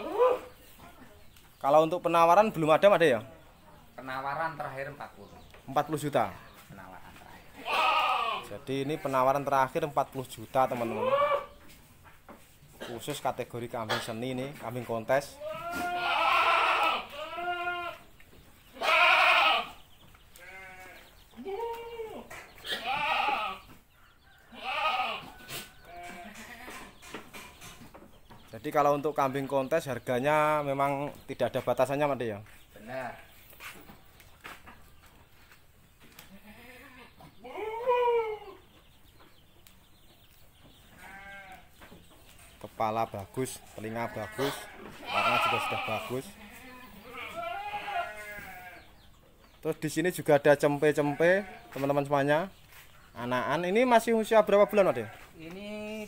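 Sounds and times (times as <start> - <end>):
goat bleating: 7.5 - 9.4, 10.7 - 11.6, 15.3 - 18.1, 18.7 - 19.8, 20.4 - 23.7, 24.5 - 27.0, 36.2 - 38.6, 40.9 - 41.8, 43.8 - 49.0, 51.0 - 51.9.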